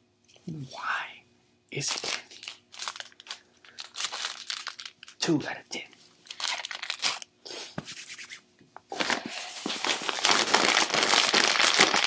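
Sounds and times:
plastic chip bag crinkling: 1.8s - 5.4s, 6.2s - 7.3s, 8.9s - 12.0s.

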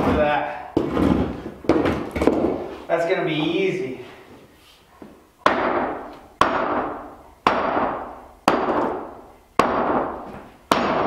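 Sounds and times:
maul striking concrete wall: 5.4s - 11.0s.

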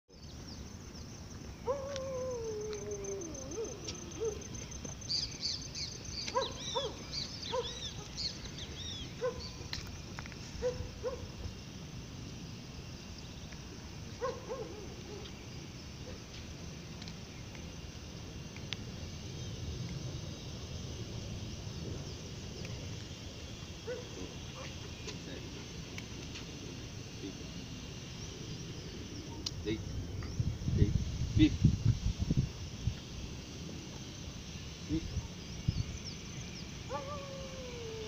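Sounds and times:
steady low background noise: 0.1s - 38.0s
small bird chirps: 2.8s - 9.8s
animal calls: 36.9s - 38.0s.

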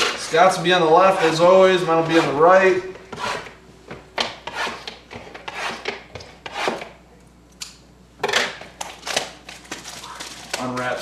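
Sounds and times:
scissors snipping wrappers: 8.8s - 11.0s
wrappers rustling: 9.0s - 11.0s.

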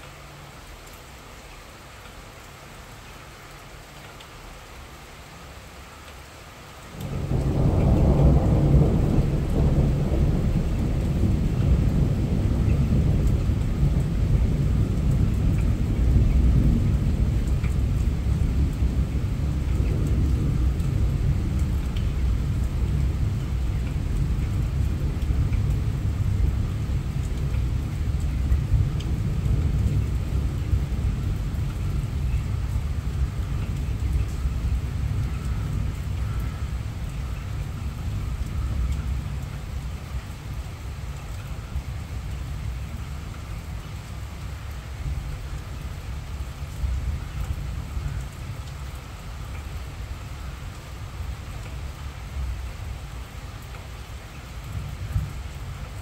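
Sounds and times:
rain falling: 0.0s - 56.0s
thunder rumbling: 7.0s - 40.6s.

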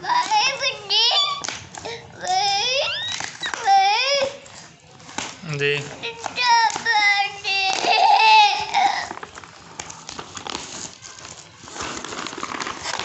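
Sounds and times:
child whining and babbling: 0.0s - 4.5s, 6.0s - 9.2s
paper wrapping rustling: 0.0s - 13.0s.

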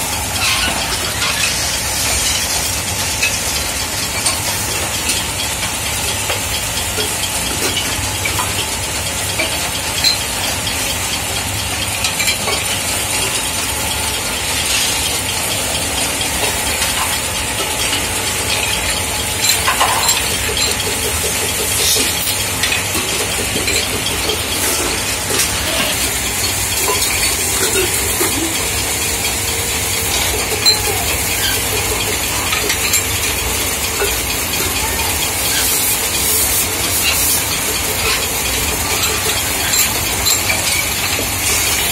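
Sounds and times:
metal-spinning lathes clattering: 0.0s - 41.9s
spinning tool squeal: 19.4s - 41.9s.

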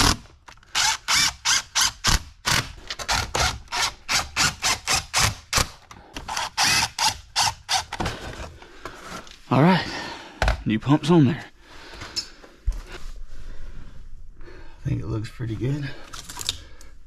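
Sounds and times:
cordless drill bursts: 0.0s - 2.2s, 6.3s - 7.9s.

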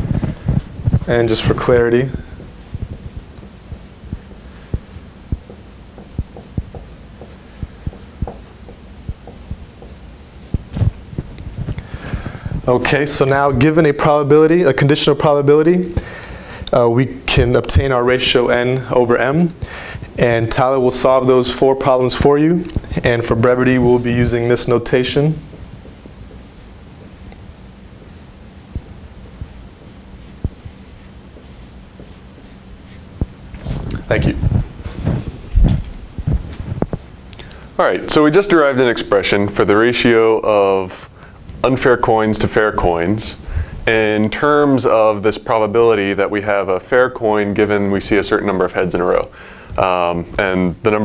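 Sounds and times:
marker squeaking on whiteboard: 2.4s - 10.7s, 25.5s - 27.4s, 28.0s - 33.0s
marker tip tapping whiteboard: 4.7s - 10.6s.

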